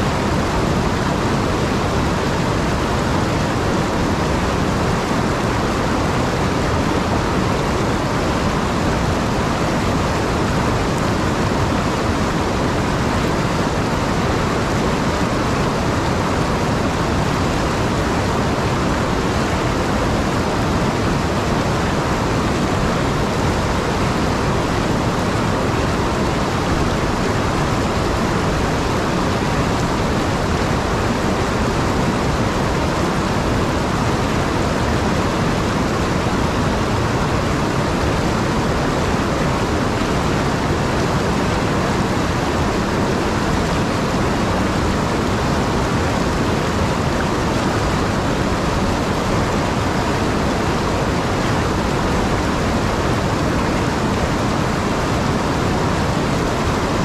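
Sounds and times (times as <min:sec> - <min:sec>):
water rushing over spillway: 0:00.0 - 0:57.0.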